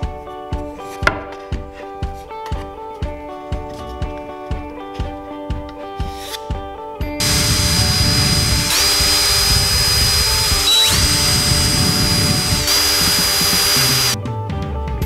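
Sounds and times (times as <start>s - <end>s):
cordless drill whining: 7.2s - 14.2s.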